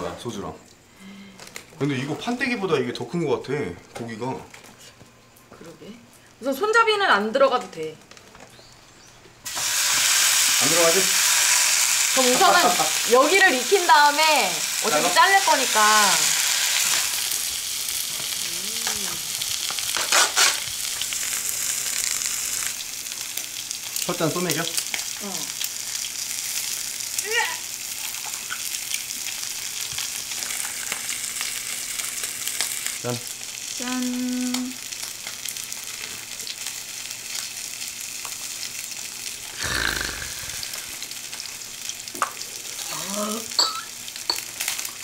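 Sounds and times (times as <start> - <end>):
steak sizzling on a grill: 6.5 - 45.0
styrofoam container rustle: 19.8 - 20.8.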